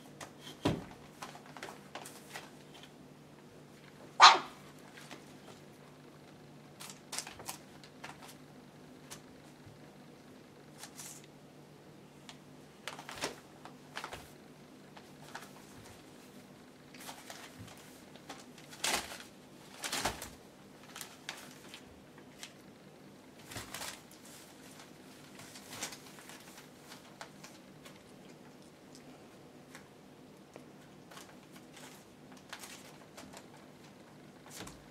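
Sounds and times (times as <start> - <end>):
faint steady hum: 0.0 - 34.9
puppies scratching on paper: 23.4 - 28.6, 30.6 - 34.9.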